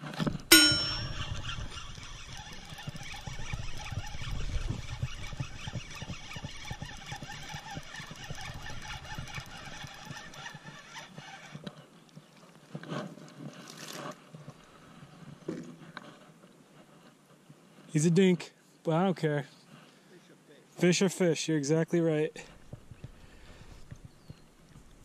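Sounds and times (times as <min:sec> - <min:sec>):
fishing reel cranking and clicking: 0:00.5 - 0:11.7.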